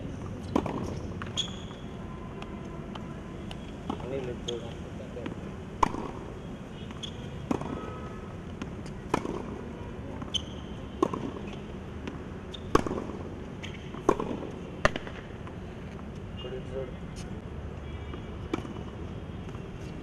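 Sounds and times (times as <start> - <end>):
outdoor background noise: 0.0 - 20.0
tennis ball struck by rackets: 0.4 - 1.7, 5.2 - 6.3, 6.9 - 7.9, 8.5 - 15.3, 18.5 - 19.6
tennis ball bouncing on hard court: 0.4 - 1.8, 2.9 - 6.3, 6.9 - 15.3, 18.5 - 19.6.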